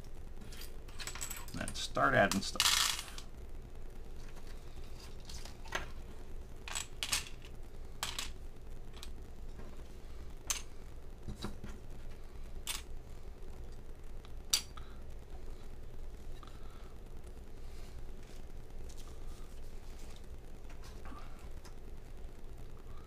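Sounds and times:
small metal parts clicking: 0:00.4 - 0:03.3, 0:06.7 - 0:09.1.

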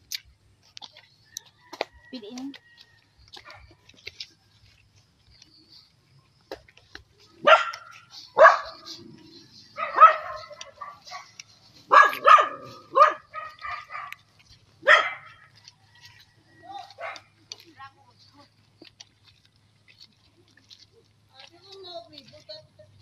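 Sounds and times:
dog barking: 0:07.4 - 0:14.2, 0:14.8 - 0:15.5, 0:16.9 - 0:17.3.

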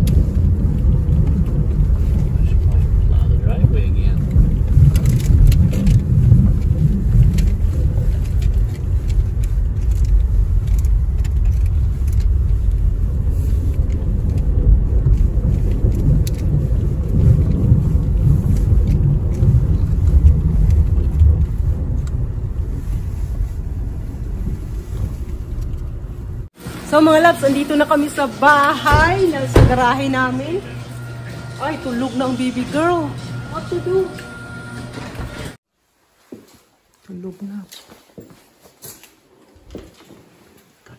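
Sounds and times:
car cabin rumble: 0:00.0 - 0:26.5.

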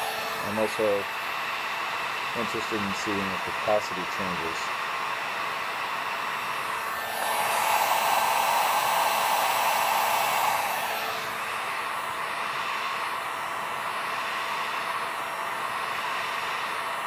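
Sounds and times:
heat gun blowing air: 0:00.0 - 0:17.0.

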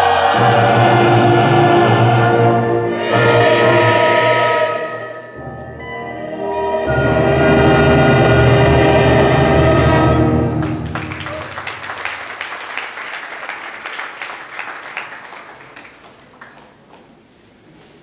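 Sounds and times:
choir and brass holding chord: 0:00.0 - 0:11.2
audience applause: 0:10.6 - 0:17.1.

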